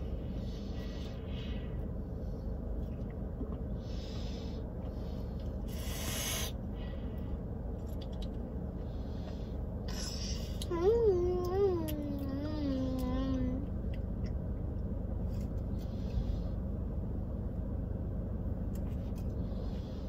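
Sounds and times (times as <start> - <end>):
child breathing through nose: 3.8 - 7.2
car cabin hum: 6.5 - 20.0.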